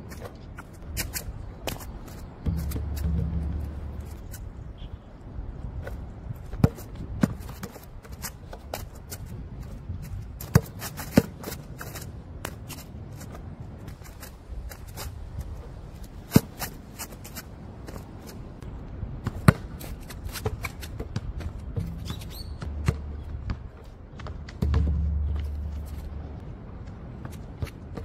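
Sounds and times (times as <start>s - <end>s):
basketballs bouncing: 21.0s - 26.0s.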